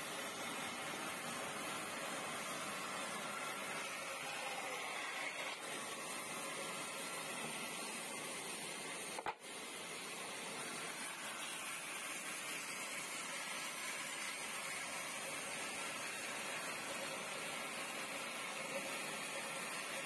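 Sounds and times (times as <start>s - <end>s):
bandsaw whirring: 0.0s - 20.0s.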